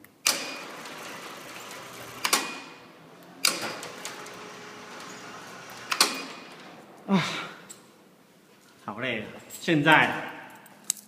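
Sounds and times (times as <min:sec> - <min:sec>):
motor clunk: 0:00.2 - 0:08.2
roller shutter door motor: 0:00.3 - 0:08.3.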